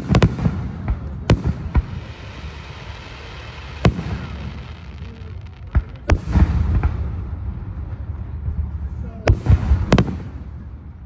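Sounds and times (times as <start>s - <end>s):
low rumble: 5.1s - 9.9s.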